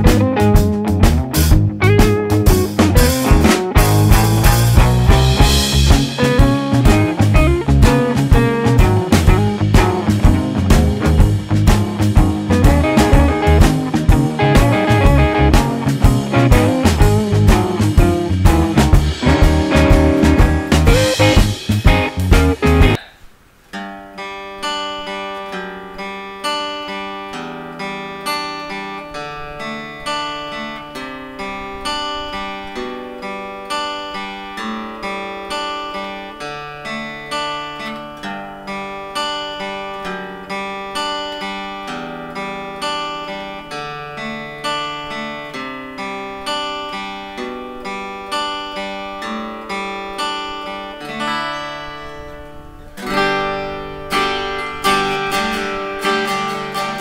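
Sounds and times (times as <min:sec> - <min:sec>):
fingerpicked acoustic guitar: 0:00.0 - 0:23.1, 0:23.7 - 0:57.0.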